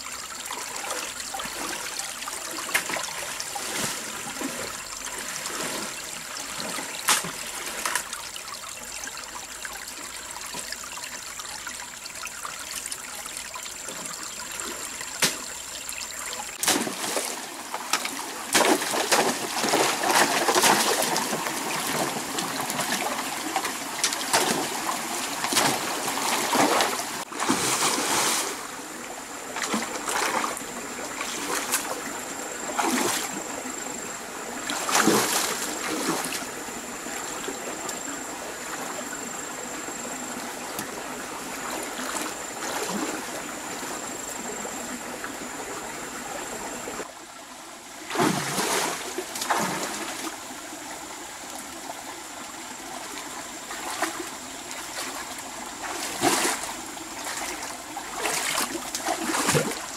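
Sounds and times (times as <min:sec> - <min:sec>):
running water trickling: 0:00.0 - 0:48.0
water splashing and sloshing: 0:00.0 - 0:59.9.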